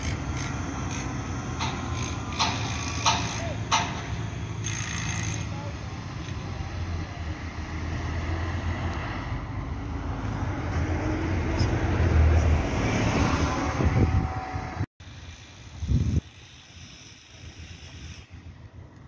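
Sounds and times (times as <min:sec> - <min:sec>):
bus driving past: 0:00.0 - 0:03.1, 0:05.8 - 0:15.4.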